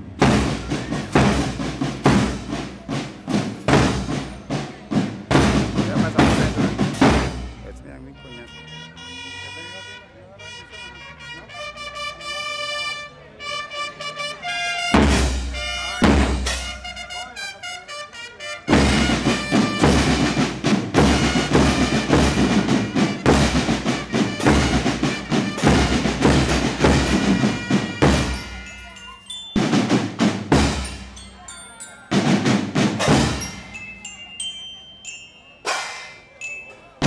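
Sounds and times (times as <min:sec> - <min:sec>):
bass drums: 0:00.0 - 0:07.8, 0:15.0 - 0:16.8, 0:18.7 - 0:28.7, 0:29.6 - 0:31.2, 0:32.2 - 0:33.7
snare drums: 0:00.0 - 0:07.8, 0:14.5 - 0:18.0, 0:18.6 - 0:29.0, 0:29.6 - 0:31.2, 0:32.1 - 0:33.9, 0:35.7 - 0:36.2.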